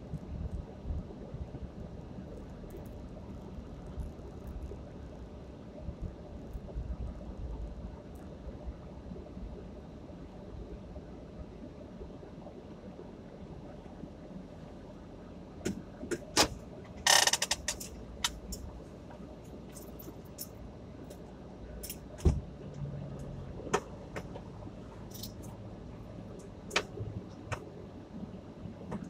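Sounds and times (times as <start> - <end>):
low steady hum: 0.0 - 29.0
clicks and taps in car cabin: 15.6 - 20.5, 23.6 - 24.5, 26.4 - 27.7
thump: 22.2 - 22.4.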